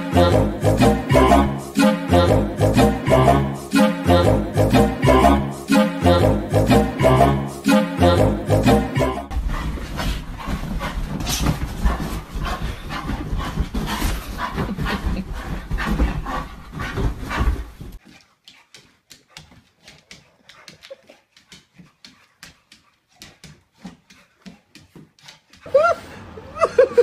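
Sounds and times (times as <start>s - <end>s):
rustling and thumping of bedding: 9.4s - 18.0s.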